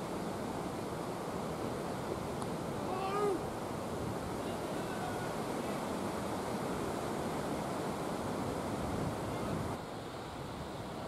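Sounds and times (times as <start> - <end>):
wind buffeting microphone: 8.1 - 9.8.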